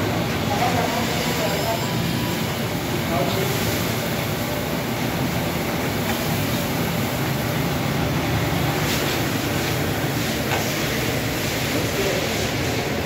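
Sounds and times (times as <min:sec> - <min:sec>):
washing machine churning: 0:00.0 - 0:13.0
water from a hose: 0:08.6 - 0:13.0.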